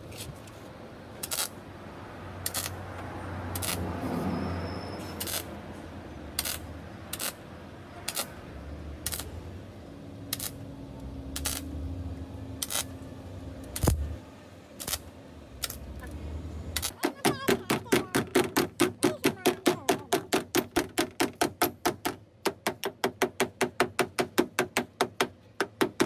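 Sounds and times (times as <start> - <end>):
crackling welds: 1.2 - 1.6, 2.4 - 2.8, 3.5 - 4.0, 5.2 - 5.6, 6.3 - 8.4, 9.0 - 9.4, 10.3 - 11.8, 12.6 - 13.0, 13.6 - 14.2, 14.8 - 16.0, 16.7 - 17.0.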